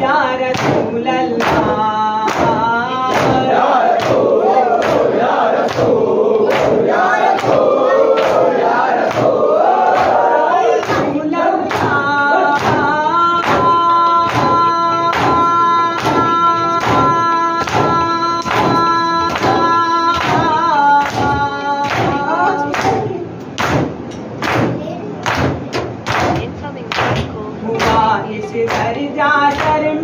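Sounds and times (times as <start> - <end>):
group of voices singing: 0.0 - 23.8, 27.0 - 30.0
rhythmic chest beating: 0.0 - 30.0.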